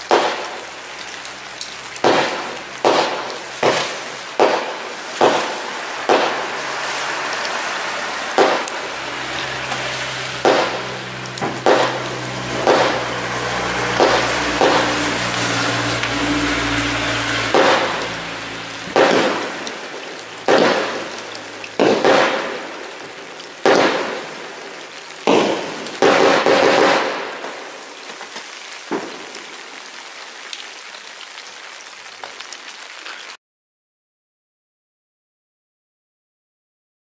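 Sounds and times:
firework hissing and crackling: 0.0s - 29.8s
firework launch bangs: 0.1s - 0.7s, 2.0s - 7.4s, 8.3s - 9.0s, 9.7s - 16.2s, 17.3s - 22.9s, 23.6s - 24.5s, 25.2s - 27.6s.

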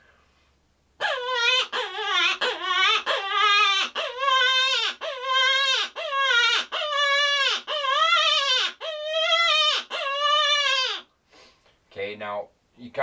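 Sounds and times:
predator call rabbit distress cries: 1.1s - 11.0s.

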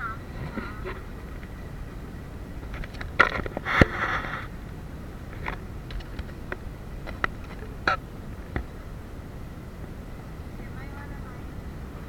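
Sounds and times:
background noise: 0.0s - 12.0s
rope scraping rustle: 2.6s - 4.6s.

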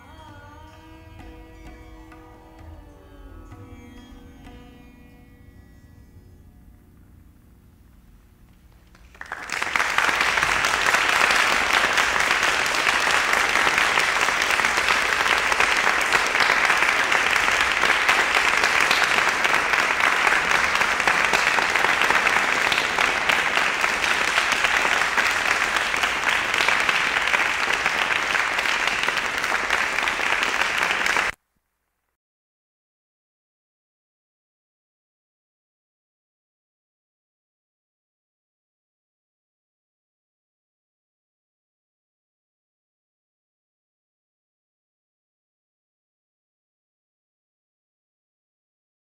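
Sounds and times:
audience applause: 8.7s - 31.4s.

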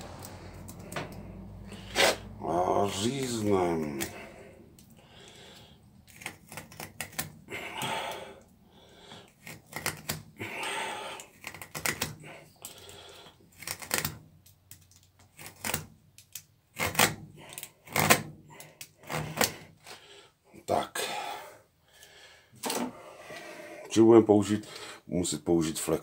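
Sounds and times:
utility knife cutting rubber: 1.7s - 2.3s, 6.0s - 8.2s, 9.3s - 12.4s, 13.5s - 14.2s, 15.3s - 19.7s.

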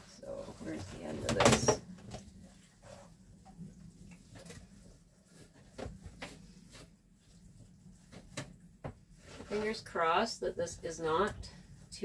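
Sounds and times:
towel rustling: 2.2s - 10.2s.

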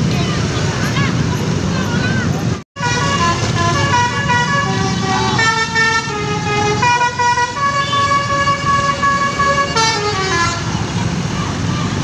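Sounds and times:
low rumble of engines: 0.0s - 12.0s
bus horn playing a tune: 2.8s - 10.8s.

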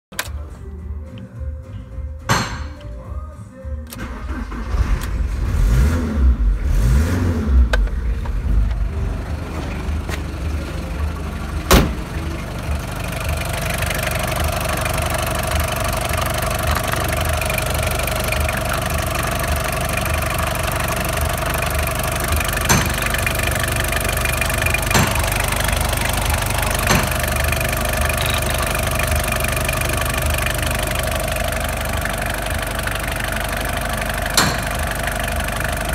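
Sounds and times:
sharp knock: 2.3s - 2.9s, 22.7s - 23.2s, 24.9s - 25.3s, 34.4s - 34.8s
diesel engine idling with clatter: 3.8s - 35.9s.

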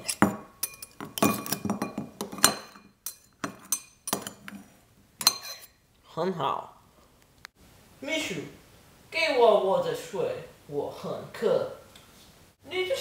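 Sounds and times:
knife clinking on tin can: 0.0s - 4.5s, 5.2s - 5.7s.

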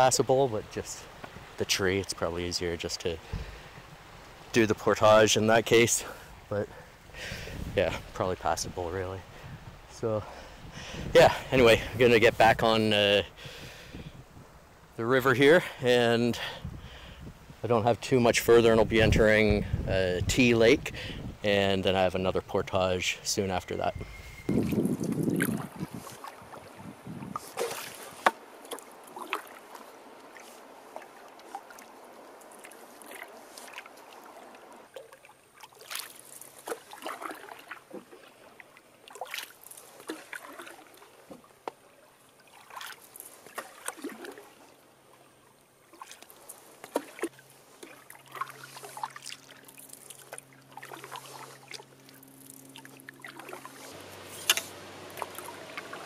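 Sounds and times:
paddle dipping in water: 3.2s - 4.6s, 24.0s - 56.0s
water splashes and drips: 24.5s - 56.0s.

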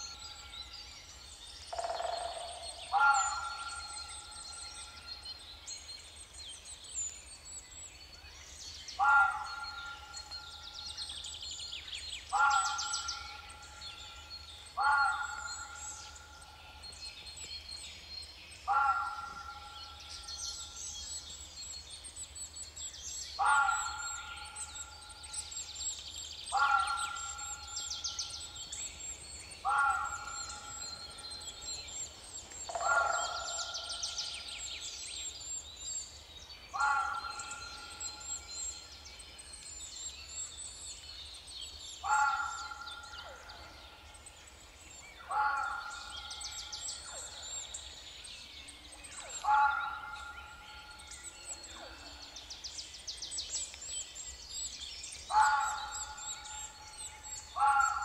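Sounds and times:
small birds chirping and trilling: 0.0s - 58.0s.

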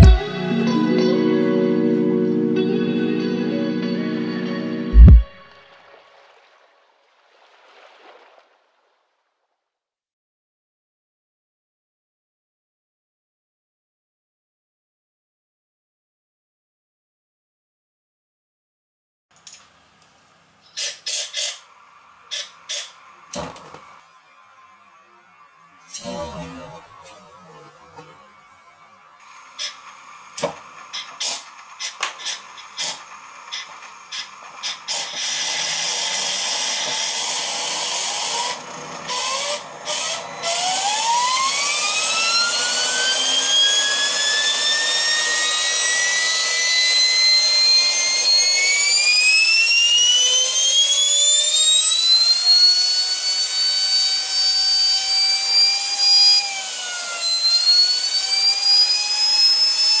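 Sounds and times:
jet engine spooling up: 0.0s - 0.3s, 4.9s - 5.4s, 32.8s - 60.0s.

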